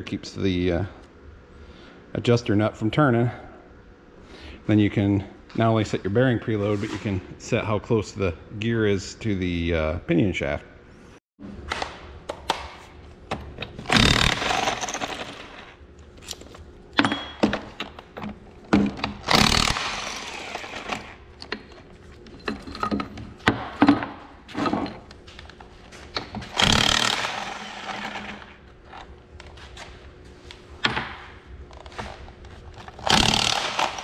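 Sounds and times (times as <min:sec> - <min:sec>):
impact wrench bursts: 0:13.8 - 0:15.7, 0:19.1 - 0:21.2, 0:26.5 - 0:28.6, 0:32.9 - 0:34.0.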